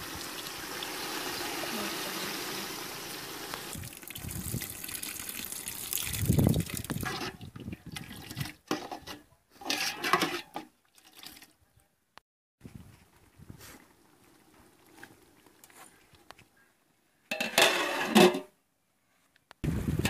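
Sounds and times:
water splashing in bursts: 0:00.0 - 0:07.1
water pouring: 0:00.0 - 0:08.7, 0:10.2 - 0:11.5.

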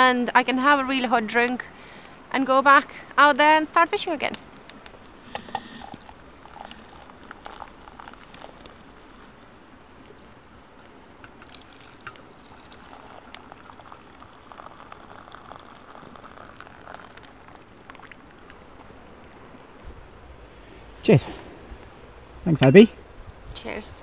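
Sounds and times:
hot water bubbling: 0:04.5 - 0:21.2
water pouring: 0:05.3 - 0:09.3, 0:11.3 - 0:19.7.

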